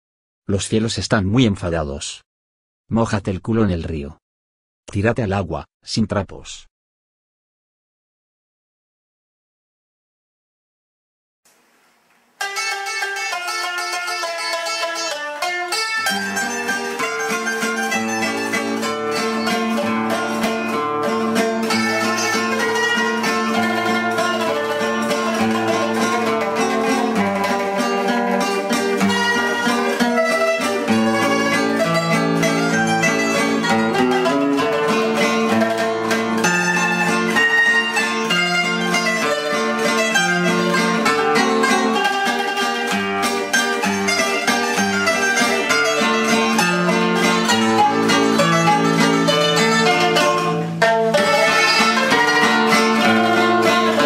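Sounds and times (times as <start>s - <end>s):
plucked string music: 12.4s - 54.0s.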